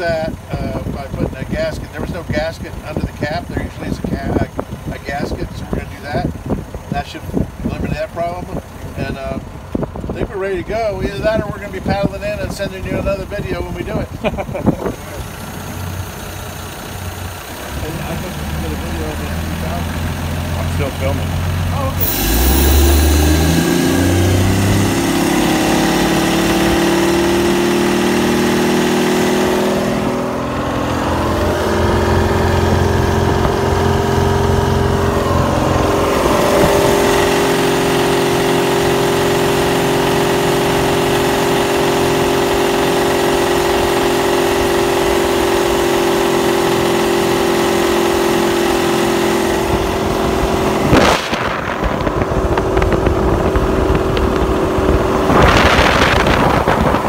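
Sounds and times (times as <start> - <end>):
boat engine running: 0.0 - 57.0.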